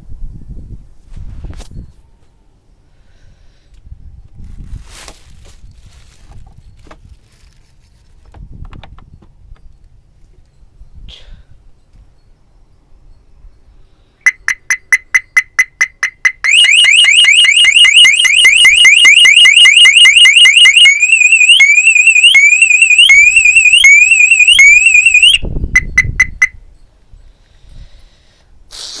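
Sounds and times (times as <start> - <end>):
car alarm siren: 14.2 - 26.6.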